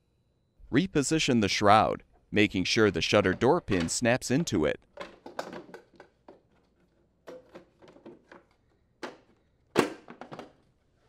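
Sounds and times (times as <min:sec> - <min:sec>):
plastic cover clicks and knocks: 0:05.0 - 0:06.4.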